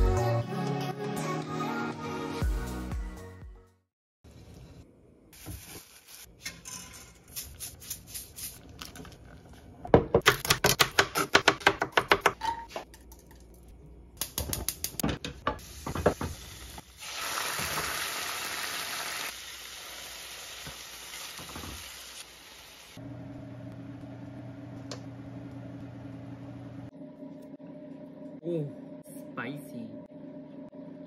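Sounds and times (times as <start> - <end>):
food frying in oil: 15.8 - 23.0.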